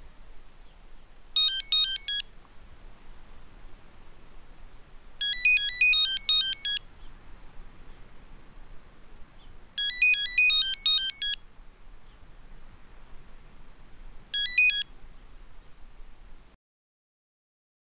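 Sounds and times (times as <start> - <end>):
faint background hiss: 0.0 - 16.6
mobile phone ringtone beeping: 1.4 - 2.2, 5.2 - 6.8, 9.8 - 11.4, 14.4 - 14.9.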